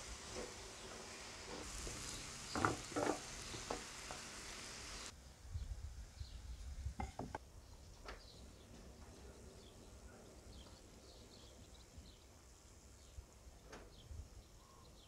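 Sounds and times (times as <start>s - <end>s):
vegetables sizzling in grill pan: 0.0s - 5.2s
wooden spatula scraping pan: 0.3s - 4.3s.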